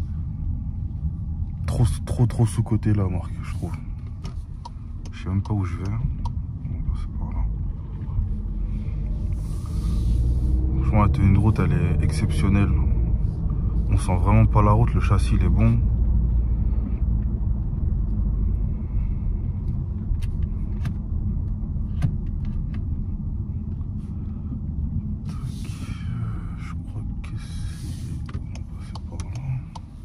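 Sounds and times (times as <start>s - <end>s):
car road and engine rumble: 0.0s - 30.0s
faint clicks: 28.2s - 29.9s.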